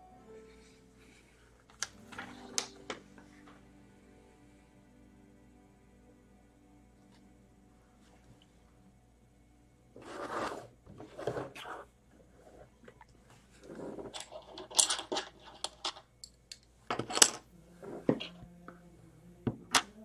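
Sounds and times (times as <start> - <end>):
plastic pieces rustling and scraping: 12.5 - 16.1
plastic pieces clicking and clattering: 14.0 - 17.4.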